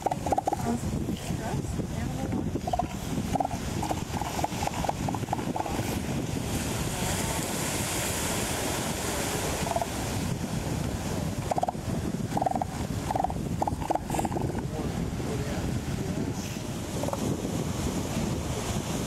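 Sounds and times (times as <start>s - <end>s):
elephant seals calling: 0.0s - 0.8s, 2.5s - 6.0s, 9.6s - 10.0s, 11.5s - 14.6s
surf washing on beach: 0.0s - 19.0s
wind on microphone: 0.0s - 19.0s.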